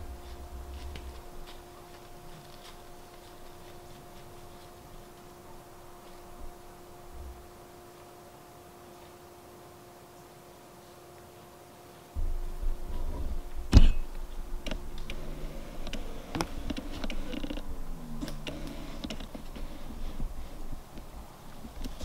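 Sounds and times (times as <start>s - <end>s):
low rumble: 0.0s - 5.0s, 12.2s - 22.0s
camera lens motor whirring: 18.2s - 20.1s.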